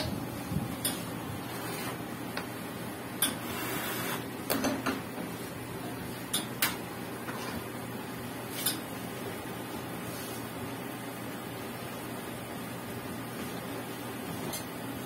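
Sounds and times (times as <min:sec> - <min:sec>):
espresso machine humming: 0:03.3 - 0:04.3.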